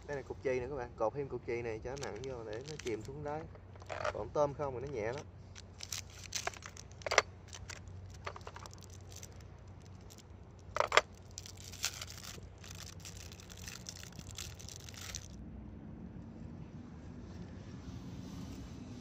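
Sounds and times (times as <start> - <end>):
fine crackly clicking: 1.8 - 4.2, 4.8 - 15.4
clicks and rustling: 1.8 - 15.3.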